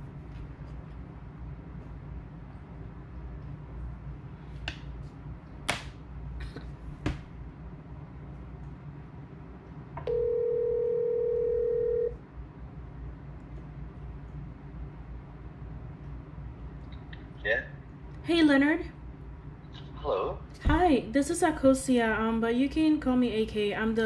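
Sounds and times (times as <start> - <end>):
phone ringback tone: 10.1 - 12.2.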